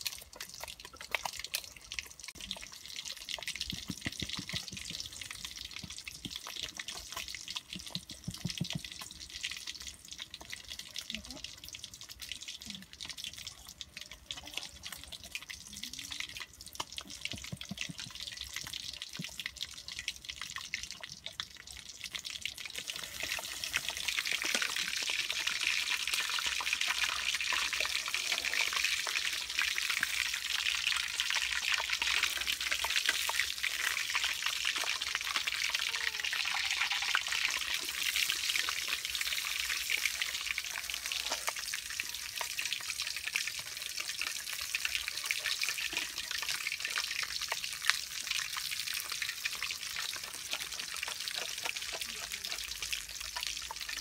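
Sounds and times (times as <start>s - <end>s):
fish sizzling in hot oil: 0.0s - 54.0s.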